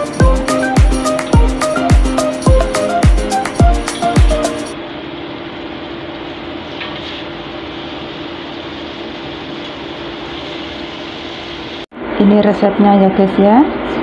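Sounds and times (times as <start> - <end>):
background music with thumping beat: 0.0 - 4.8.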